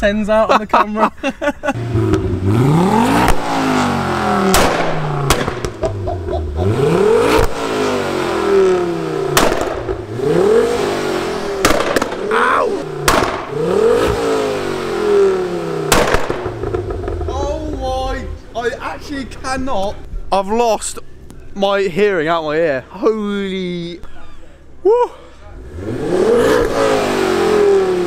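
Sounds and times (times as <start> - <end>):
car engine revving: 1.7 - 19.5, 25.5 - 28.0
exhaust bangs and pops: 1.8 - 8.6, 9.2 - 18.5.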